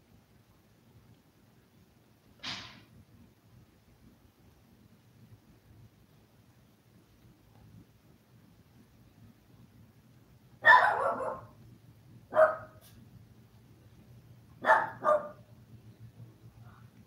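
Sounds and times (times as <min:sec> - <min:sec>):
dog barking: 0:10.6 - 0:11.6, 0:12.3 - 0:12.9, 0:14.6 - 0:15.5.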